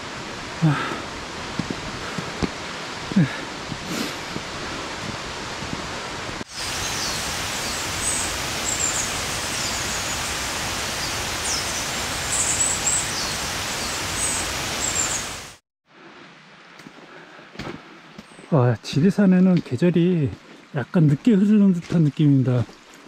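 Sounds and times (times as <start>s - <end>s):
stream rushing water: 0.0s - 15.6s
small birds chirping: 6.6s - 15.5s.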